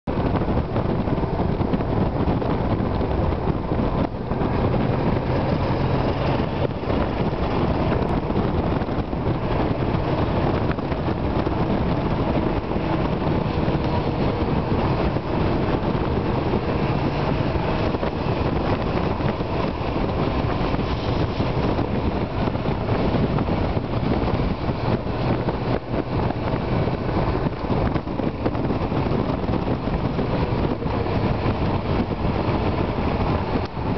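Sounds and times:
road noise: 0.0 - 33.9
wind rush: 0.0 - 33.9
engine running: 0.1 - 33.9.

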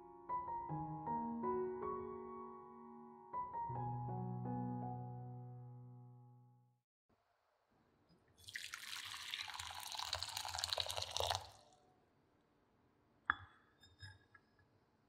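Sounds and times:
water pouring and splashing: 8.4 - 11.8.

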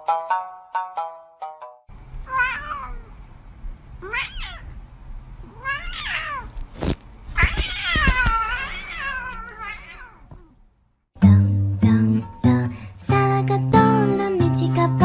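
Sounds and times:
cat meowing: 2.2 - 3.2, 4.0 - 4.8, 5.4 - 6.6, 7.4 - 10.6.

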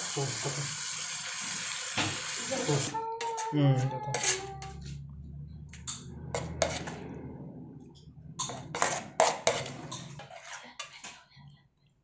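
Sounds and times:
low hum: 4.9 - 8.5.

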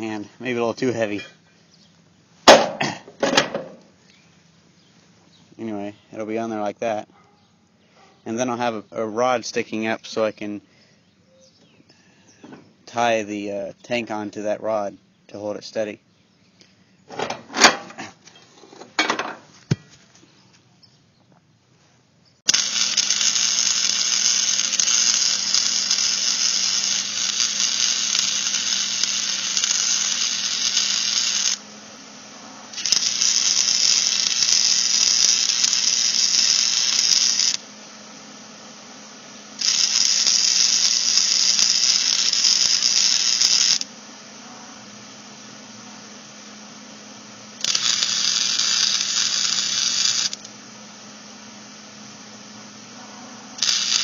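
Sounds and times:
arc welding crackling sizzle: 22.4 - 38.0, 39.4 - 44.2, 45.0 - 52.8, 53.5 - 54.0
low hum: 52.1 - 53.7.

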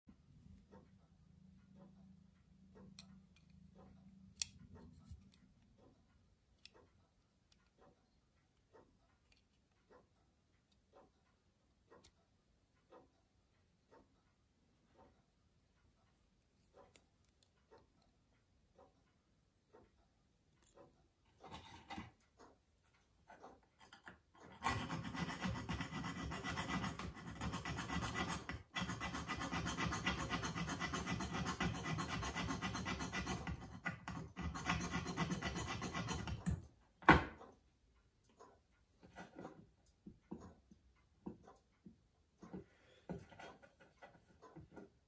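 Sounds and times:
hand file rasping metal: 23.8 - 36.6.

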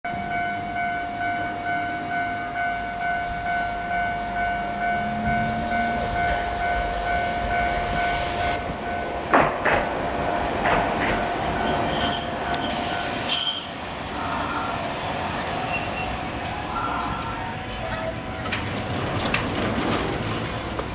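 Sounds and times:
level-crossing warning bell: 0.1 - 9.3, 15.6 - 19.0
tram wheels clattering: 3.9 - 20.9
tram brakes squealing: 10.5 - 19.7.

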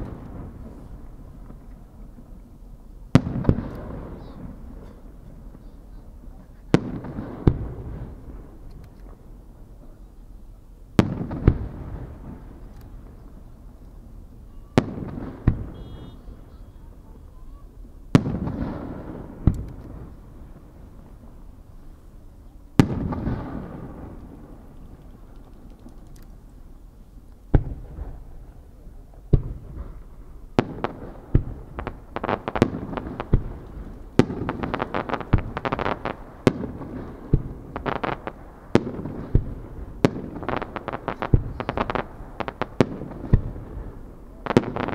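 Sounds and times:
firework booms with echoing rumble: 0.0 - 2.4, 3.1 - 5.8, 6.7 - 8.6, 10.9 - 16.6, 17.8 - 21.8, 22.7 - 25.0, 27.5 - 44.9
sharp firework bangs: 3.1 - 5.8, 6.7 - 8.6, 11.0 - 13.5, 14.6 - 16.6, 18.1 - 21.3, 22.8 - 24.7, 27.5 - 28.5, 29.2 - 44.9.

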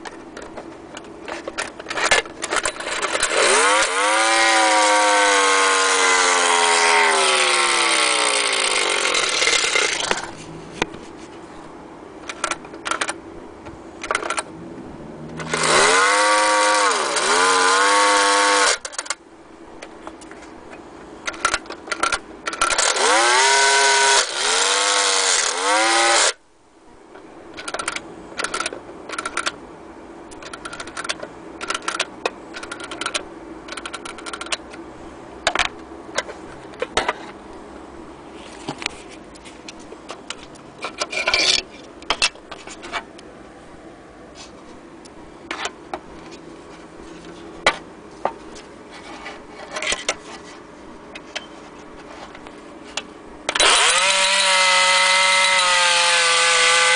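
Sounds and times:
clockwork motor whirring: 2.0 - 10.3, 15.4 - 19.2, 21.3 - 26.4, 53.5 - 56.9.

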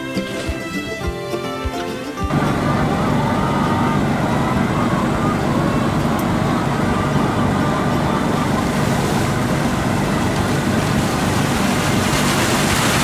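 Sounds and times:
exhaust fans rushing air: 2.3 - 13.0
low motor hum: 2.3 - 13.0.

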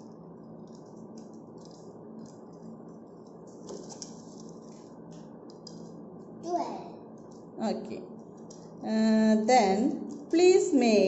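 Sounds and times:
plastic straws rattling and clicking: 0.0 - 5.9
steady low hum: 0.0 - 11.0.

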